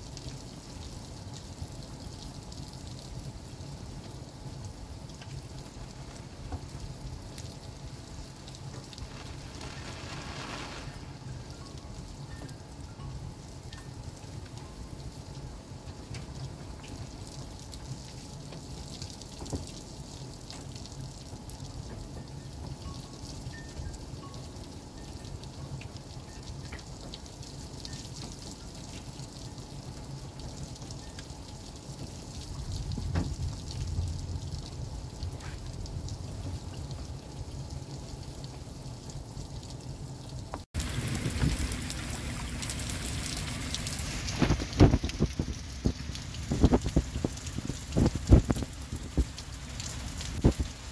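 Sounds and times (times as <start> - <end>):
heavy rain: 0.0 - 50.9
raindrops tapping: 5.0 - 13.1, 16.0 - 23.6, 40.4 - 50.9
thunder rumble: 8.8 - 11.7, 32.6 - 37.6, 40.8 - 50.9.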